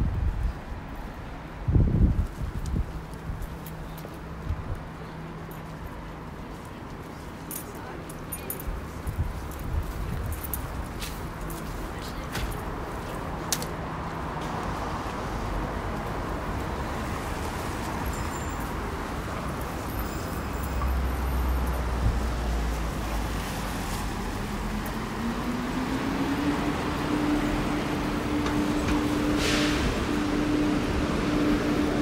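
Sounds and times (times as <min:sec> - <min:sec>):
passing vehicles: 0:00.0 - 0:32.0.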